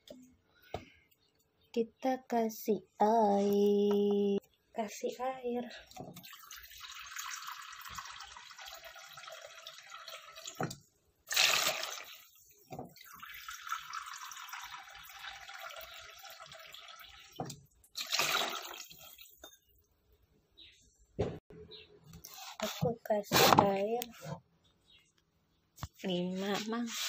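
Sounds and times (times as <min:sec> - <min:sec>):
water running into a bowl: 0:06.1 - 0:19.5
water splashing into metal pot: 0:06.1 - 0:19.6.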